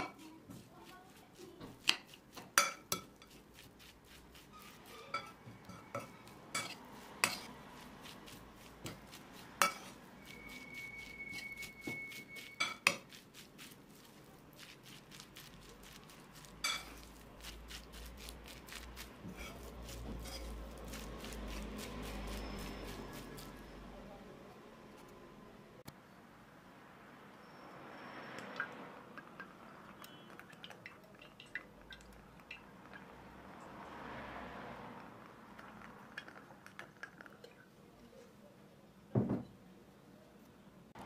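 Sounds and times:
grated potato rustling: 0:00.0 - 0:23.8
fork clinking on bowl: 0:04.6 - 0:07.5, 0:09.6 - 0:13.2, 0:15.9 - 0:17.2.

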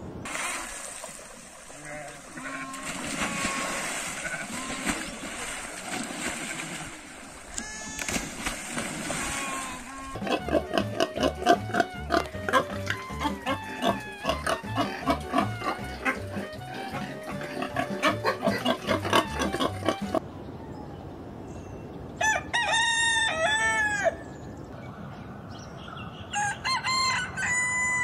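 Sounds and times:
water splashing: 0:00.2 - 0:20.2
sheep bleating: 0:01.8 - 0:04.8
pig grunting: 0:09.3 - 0:20.2
background music: 0:10.2 - 0:20.2.

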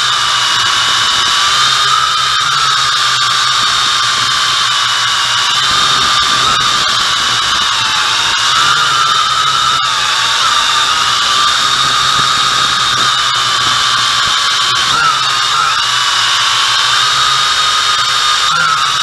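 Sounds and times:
drone propellers whining: 0:00.0 - 0:19.0.

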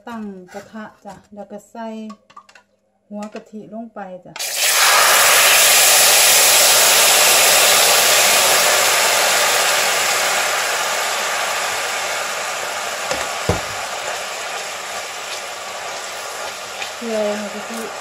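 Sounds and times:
coconut cream sizzling in a pan: 0:04.4 - 0:18.0.

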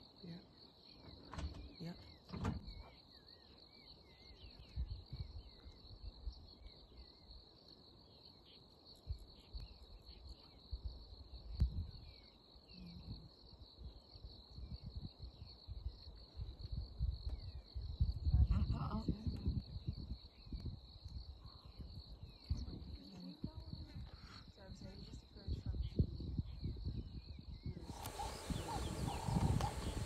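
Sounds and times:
shrill insect chorus: 0:00.0 - 0:30.0
short chirping calls: 0:27.6 - 0:30.0
low rumbles: 0:27.8 - 0:30.0.

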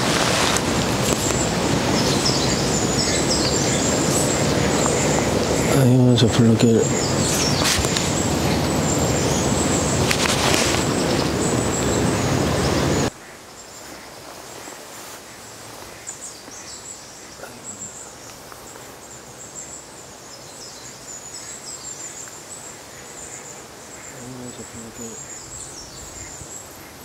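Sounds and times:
loud rushing noise: 0:00.0 - 0:13.1
small birds chirping: 0:00.0 - 0:27.0.

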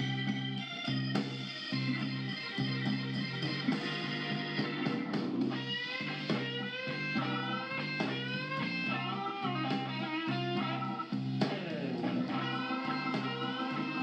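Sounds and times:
guitar with sliding notes: 0:00.0 - 0:14.0
steady bass line: 0:00.0 - 0:14.0.

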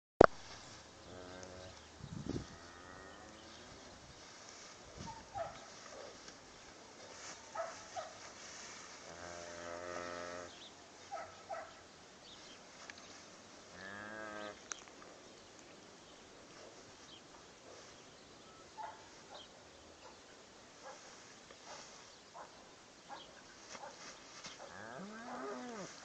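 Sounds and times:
cattle mooing: 0:24.7 - 0:25.9.

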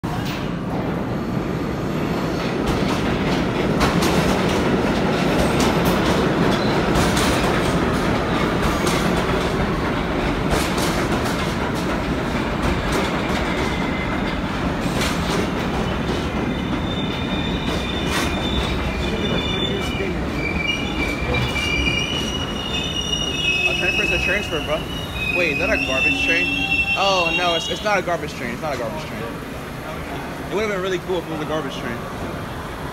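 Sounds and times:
subway train rumbling: 0:00.0 - 0:32.9
rail clacks: 0:02.2 - 0:29.3
wheel squeal: 0:16.0 - 0:27.8.

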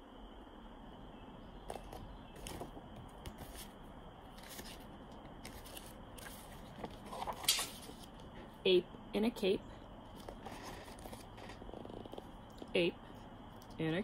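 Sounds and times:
steady background hiss: 0:00.0 - 0:14.0
book pages rustling: 0:01.7 - 0:08.4, 0:10.1 - 0:12.7.

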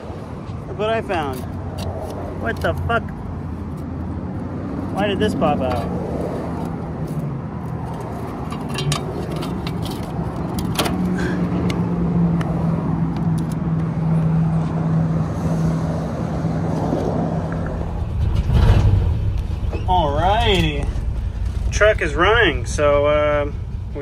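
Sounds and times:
truck engine idling: 0:17.6 - 0:24.0.

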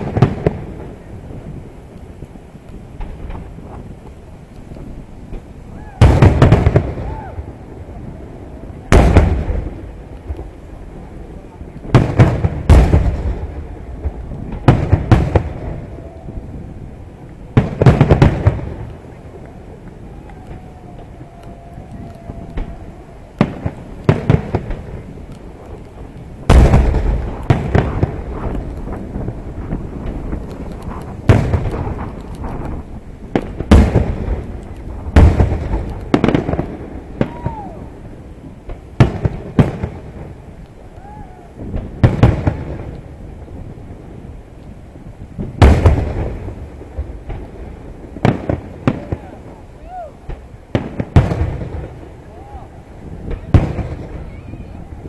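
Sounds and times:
fireworks bursting with sharp bangs: 0:00.0 - 0:55.0
firework shells bursting: 0:21.8 - 0:37.7.

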